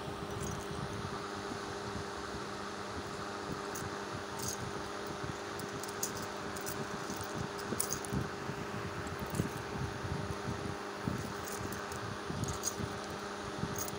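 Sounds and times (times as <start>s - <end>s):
steady mechanical hum: 0.0s - 13.9s
metal rings clicking together: 0.3s - 0.7s, 3.7s - 4.6s, 5.6s - 8.2s, 9.0s - 9.6s, 11.2s - 13.9s.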